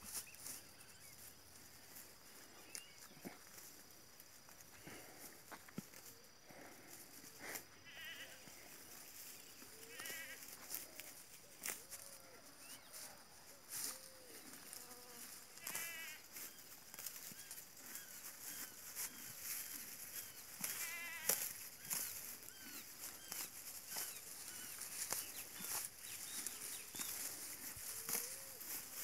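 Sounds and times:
horse chewing dry grass: 15.3s - 29.0s
small chirps: 15.6s - 29.0s.

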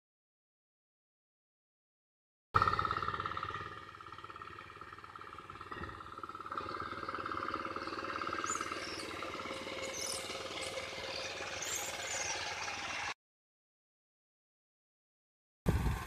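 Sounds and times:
small engine running steadily: 2.6s - 13.2s, 15.7s - 16.0s.

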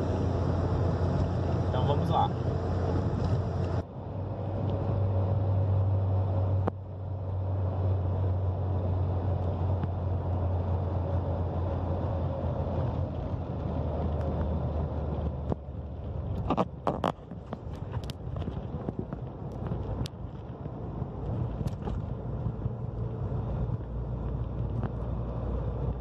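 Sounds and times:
car engine and road noise: 0.0s - 26.0s.

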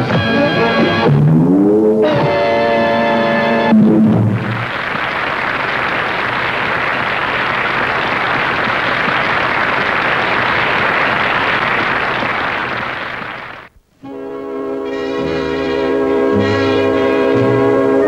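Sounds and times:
audience applause: 4.2s - 13.7s.

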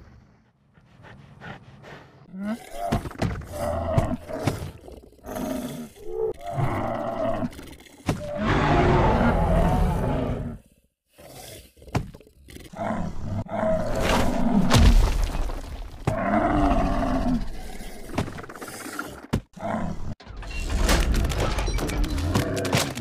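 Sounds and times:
loud animal roars: 5.2s - 10.6s, 16.1s - 20.2s.

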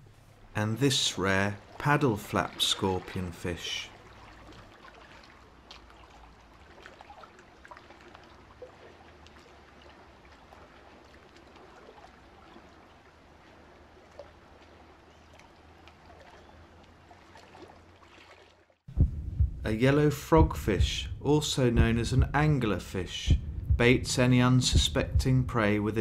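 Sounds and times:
steady low hum: 18.9s - 26.0s.

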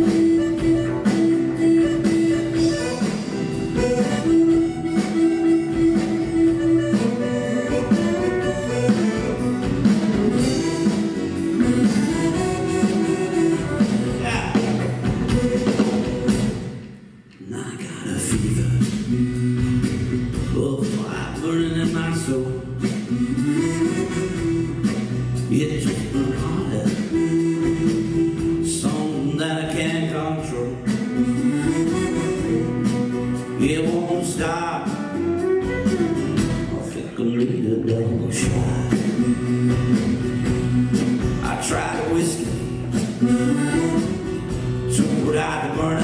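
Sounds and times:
fiddle: 0.0s - 14.4s
accordion: 0.0s - 16.8s, 22.8s - 25.6s, 26.4s - 29.2s, 30.5s - 37.0s, 38.6s - 46.0s
live band playing: 0.0s - 46.0s
person singing: 25.5s - 46.0s.

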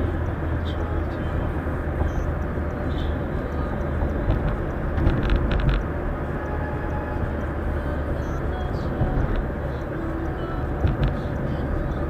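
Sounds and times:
low car engine hum: 0.0s - 12.0s
road and tyre noise: 0.0s - 12.0s
clicks or rattles: 4.3s - 5.9s.

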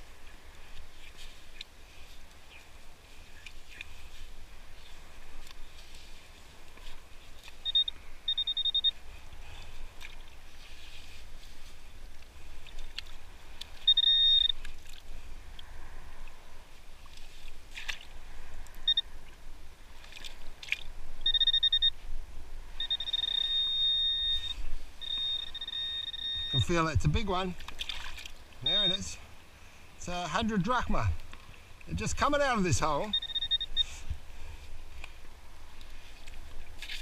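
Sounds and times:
pinpointer electronic alert tone: 7.6s - 9.0s, 13.8s - 14.6s, 21.2s - 22.0s, 22.8s - 27.2s, 28.6s - 29.2s, 32.7s - 34.0s.

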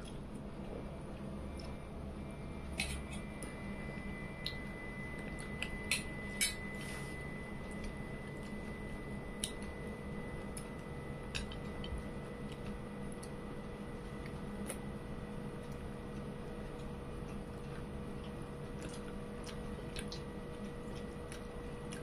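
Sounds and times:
low room hum: 0.0s - 22.0s
chewing: 15.6s - 22.0s.

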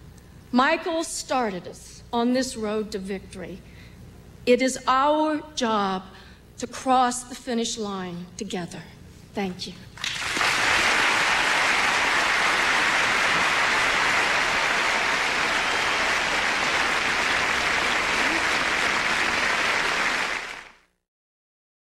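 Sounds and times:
audience applauding: 10.0s - 20.8s.

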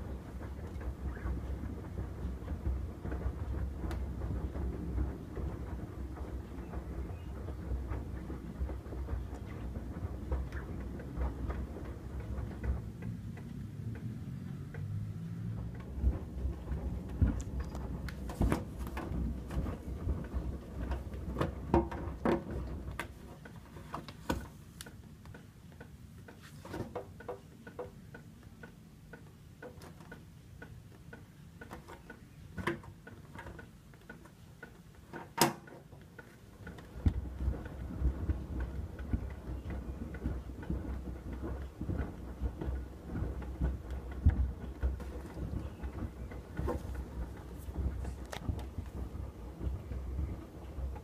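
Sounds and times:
washer-dryer drum rumbling: 0.0s - 25.0s, 26.2s - 51.0s
load knocking in drum: 15.5s - 24.5s.

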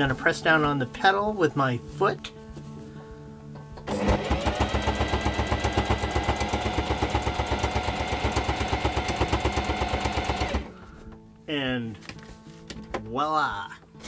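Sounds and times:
sewing machine stitching: 3.9s - 10.7s.

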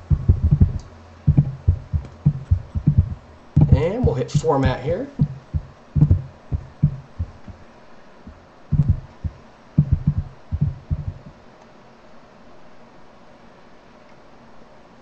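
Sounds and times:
muffled low thumps: 0.0s - 7.7s, 8.3s - 11.4s.

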